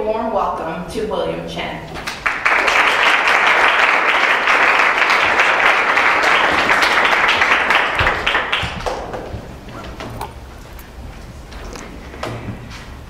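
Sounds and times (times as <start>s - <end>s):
audience applauding: 2.0s - 10.8s.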